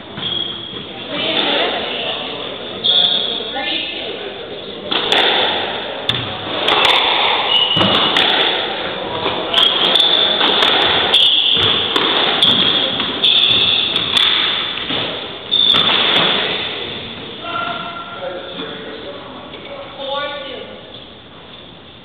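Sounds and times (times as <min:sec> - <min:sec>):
squash ball hits echoing: 0:04.9 - 0:18.1.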